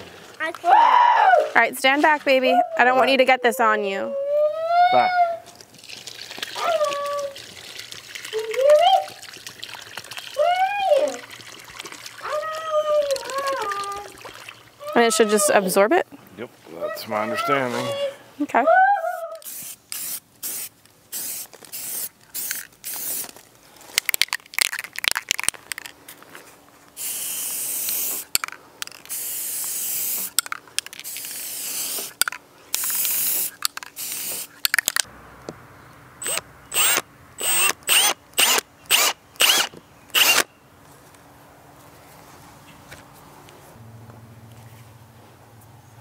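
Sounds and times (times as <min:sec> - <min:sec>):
spray paint hissing: 0:19.2 - 0:23.4, 0:27.0 - 0:34.8
cordless drill whirring: 0:36.2 - 0:40.4.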